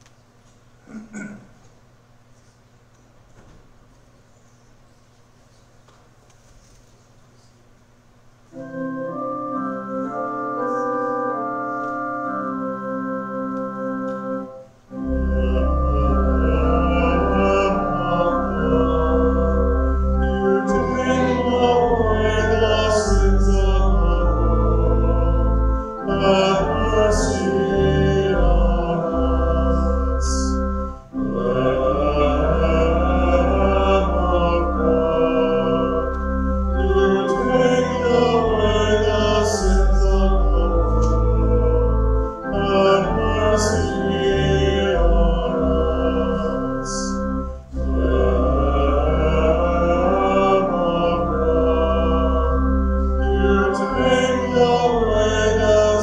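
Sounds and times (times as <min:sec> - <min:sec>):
church organ chords: 0:08.5 - 0:56.0
voices singing: 0:15.1 - 0:56.0.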